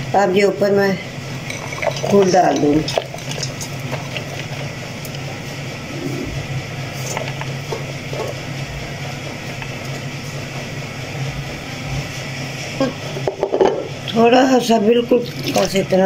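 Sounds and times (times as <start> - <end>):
low background hum: 0.0 - 16.0
food shifted in metal pot: 1.4 - 4.8.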